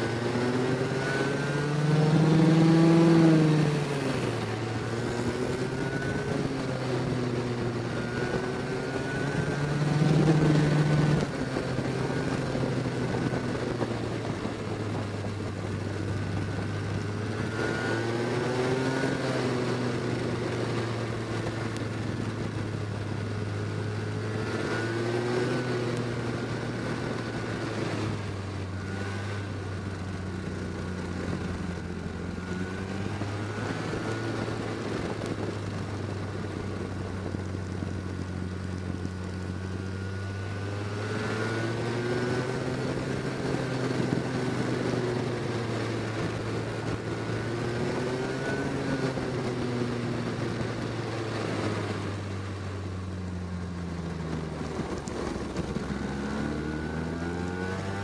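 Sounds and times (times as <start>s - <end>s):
go-kart engine running under load: 0.0s - 58.0s.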